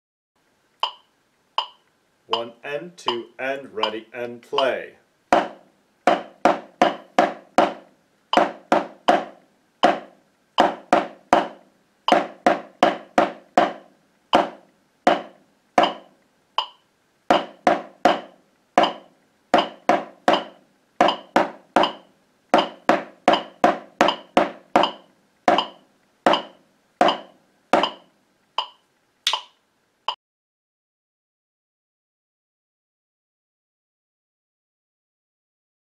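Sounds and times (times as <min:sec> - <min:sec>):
metronome clicking: 0:00.8 - 0:04.0, 0:15.8 - 0:16.9, 0:18.1 - 0:29.6
drumsticks on practice pad: 0:00.8 - 0:29.6.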